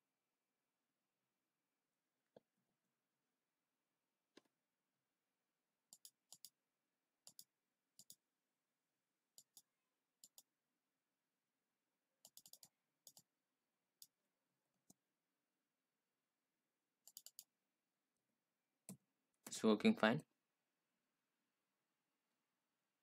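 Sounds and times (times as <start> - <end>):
computer mouse clicks: 5.9 - 6.6, 7.2 - 8.2, 9.4 - 10.5, 12.2 - 13.3, 17.0 - 17.5.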